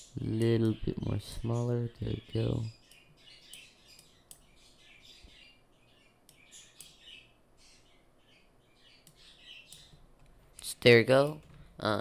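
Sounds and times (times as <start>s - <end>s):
faint high chirping: 0.0s - 10.1s
soft clicks: 2.9s - 4.5s, 6.2s - 7.0s, 9.0s - 10.7s.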